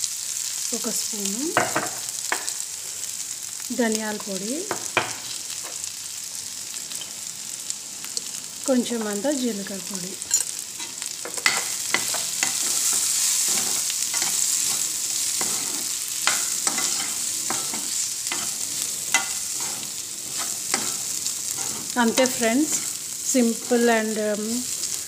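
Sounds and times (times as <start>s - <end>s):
vegetables sizzling in oil: 0.0s - 25.0s
spoon scraping metal pan: 10.2s - 23.0s.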